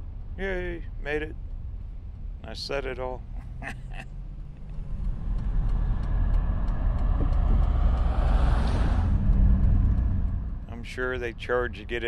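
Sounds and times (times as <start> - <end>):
engine and tyre rumble: 0.0 - 12.0
rushing road noise: 3.2 - 12.0.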